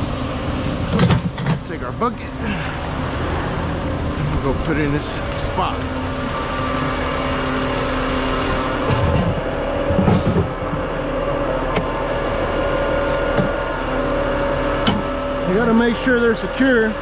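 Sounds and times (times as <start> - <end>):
diesel truck engine running: 0.0 - 17.0.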